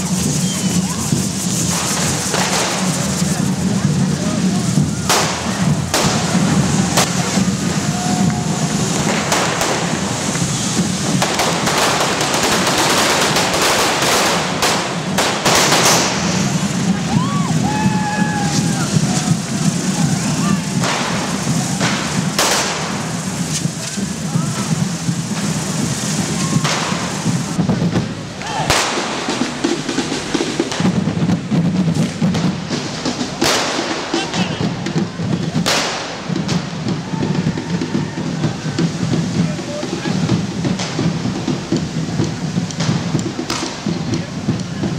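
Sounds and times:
firecracker bangs: 0.0 - 44.9
firework fountains hissing: 0.0 - 44.9.

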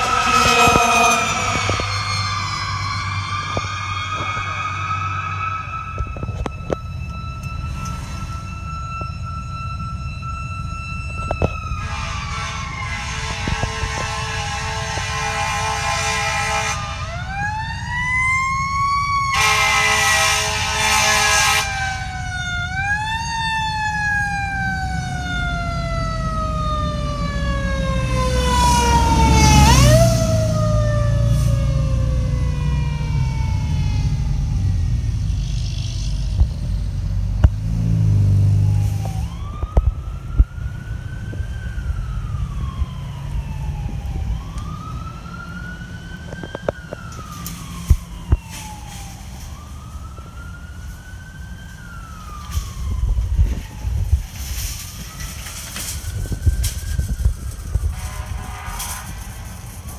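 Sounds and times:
fire engine air horn blasts: 0.0 - 9.2, 11.0 - 17.6, 19.2 - 23.3, 24.9 - 33.5, 52.1 - 59.9
fire engine siren wailing: 0.0 - 59.9
second siren rising and falling: 0.0 - 59.9.

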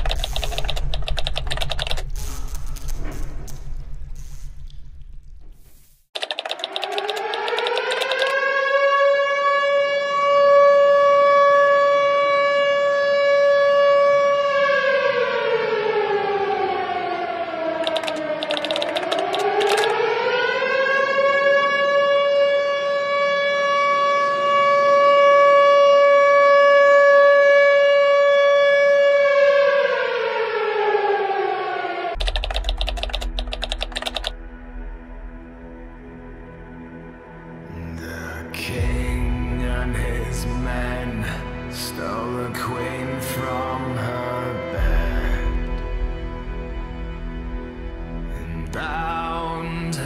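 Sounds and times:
rapid typewriter-like clicking: 0.0 - 2.1, 6.2 - 8.4, 17.8 - 19.9, 32.2 - 34.4
air-raid siren wailing: 6.6 - 32.2.

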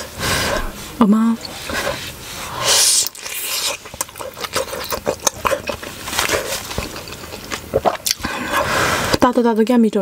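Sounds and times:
chewing with wet mouth smacks: 3.0 - 8.4.

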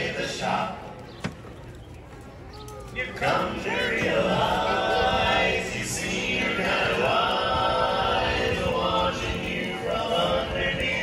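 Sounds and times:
men singing in close harmony: 3.0 - 11.0.

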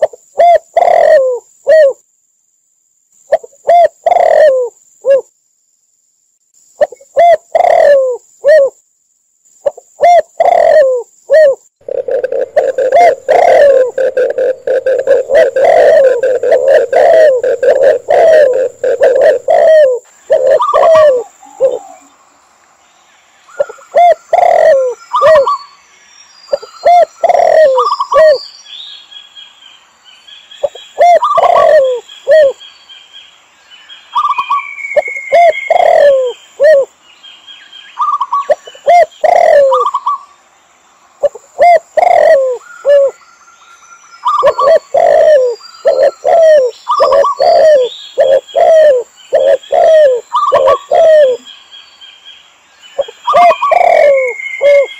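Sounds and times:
doves cooing: 0.0 - 2.0, 3.3 - 5.2, 6.8 - 8.7, 10.0 - 22.2, 23.5 - 25.6, 26.5 - 28.4, 30.6 - 32.6, 34.2 - 36.9, 38.0 - 40.2, 41.2 - 43.2, 44.2 - 51.5, 53.0 - 54.9
bird chirping and trilling: 11.8 - 22.2, 23.4 - 33.1, 33.8 - 36.6, 37.4 - 40.4, 41.8 - 52.2, 52.8 - 54.9.

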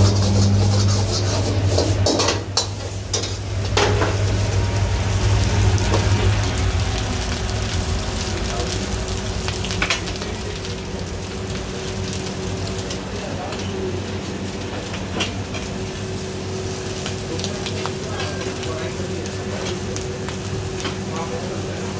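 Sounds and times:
ladle clanking against wok: 0.0 - 4.2
steady low hum: 0.0 - 17.3
noodles sizzling in a wok: 0.0 - 21.9.

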